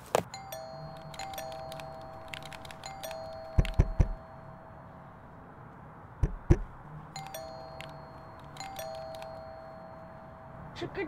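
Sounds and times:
knocking on door: 0:03.6 - 0:04.2, 0:06.2 - 0:06.7.

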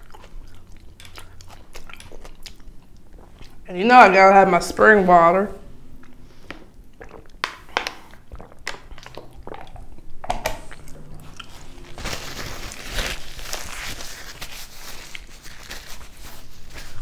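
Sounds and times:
gulping water from bottle: 0:06.1 - 0:11.9
paper napkin rustling on hands: 0:11.4 - 0:17.0.

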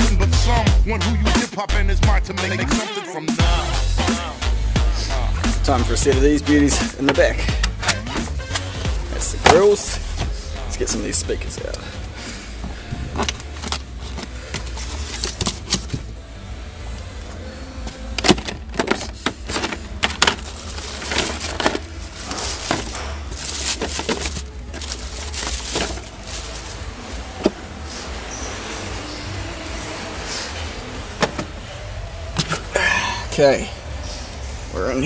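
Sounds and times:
plastic bags crinkling: 0:12.7 - 0:16.1, 0:18.0 - 0:27.4.

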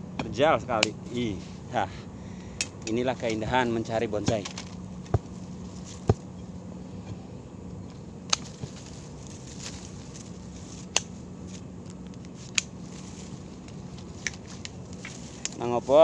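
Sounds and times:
faint low hum: 0:00.0 - 0:16.0
branches snapping: 0:02.5 - 0:06.4, 0:07.8 - 0:16.0
small cracks of branches: 0:04.2 - 0:06.3, 0:07.8 - 0:15.8.

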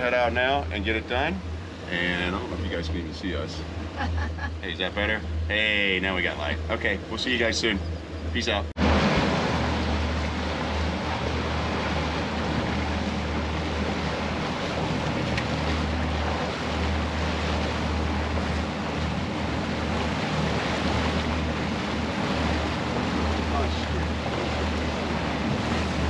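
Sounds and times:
churning water: 0:00.0 - 0:26.0
outboard motors running: 0:00.0 - 0:26.0
wind buffeting microphone: 0:06.2 - 0:26.0.

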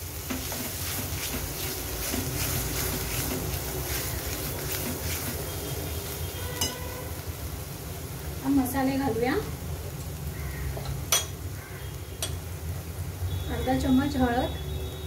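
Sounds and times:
spice paste frying in oil: 0:00.0 - 0:15.0
metal spoon scraping pan: 0:06.5 - 0:06.9.

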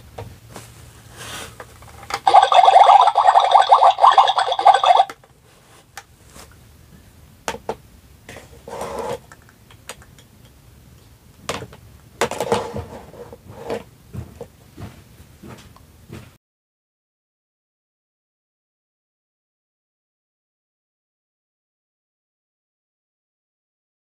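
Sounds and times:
scraping rustle: 0:00.5 - 0:02.1.

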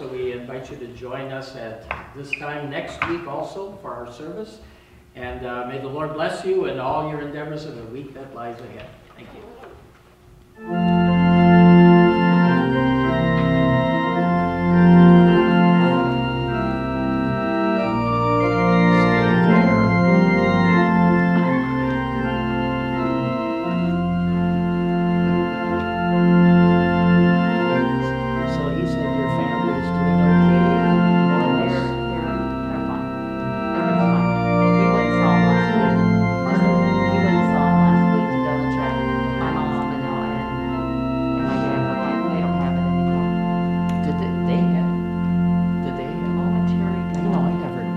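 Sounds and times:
church organ playing chords: 0:00.0 - 0:08.7, 0:10.5 - 0:47.9.

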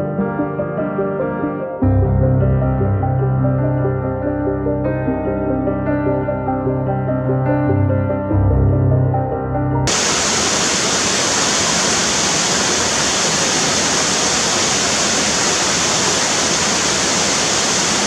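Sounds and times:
piano music: 0:00.0 - 0:09.9
waterfall pouring into pool: 0:09.9 - 0:18.0.

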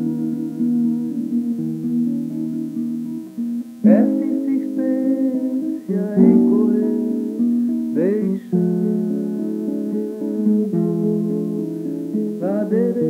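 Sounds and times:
acoustic guitar chords ringing: 0:00.0 - 0:13.0.

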